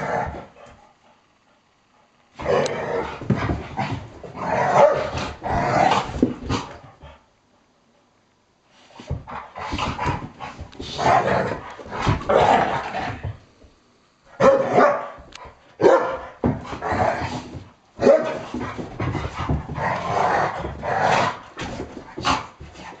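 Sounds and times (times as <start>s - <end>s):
dogs play-fighting growling: 0.0s - 1.2s, 2.4s - 7.2s, 8.9s - 13.4s, 14.6s - 23.0s
dogs barking sharply: 14.4s - 15.2s, 15.8s - 16.3s.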